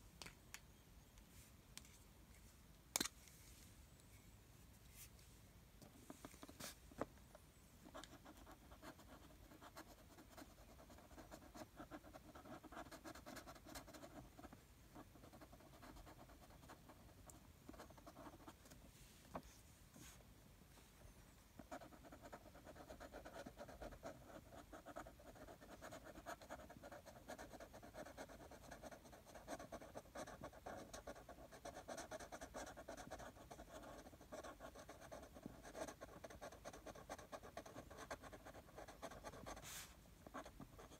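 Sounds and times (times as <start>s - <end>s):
marker scratching on paper: 21.6s - 40.9s.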